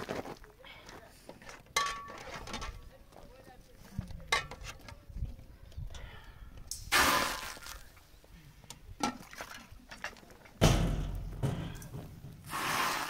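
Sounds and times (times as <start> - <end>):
dough hissing on hot iron: 12.5 - 13.0.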